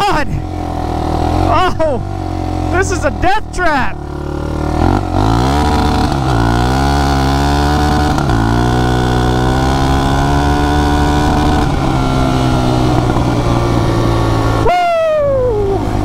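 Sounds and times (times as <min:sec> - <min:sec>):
atv engine accelerating: 0:00.0 - 0:16.0.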